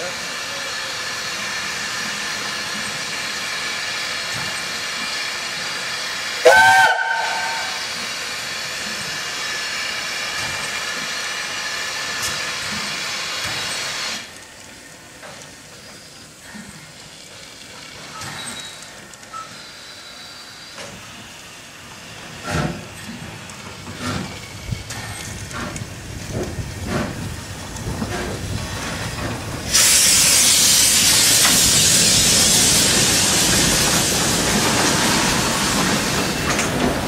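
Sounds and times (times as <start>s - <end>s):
steam hissing: 0.0s - 37.0s
steam whistle blast: 6.4s - 7.9s.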